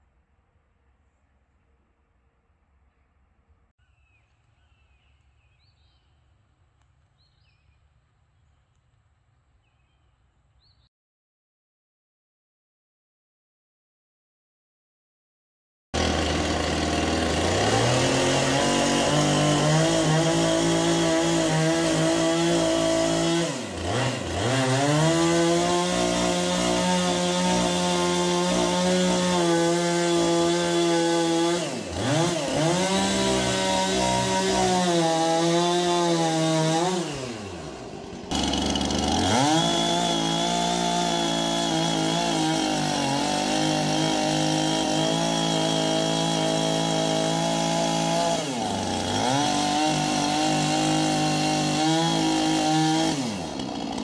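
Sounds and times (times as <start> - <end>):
chainsaw engine running: 16.0 - 54.0.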